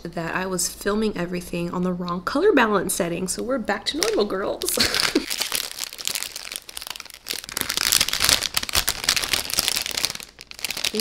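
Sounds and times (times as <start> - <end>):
food packaging crinkling: 4.0 - 11.0.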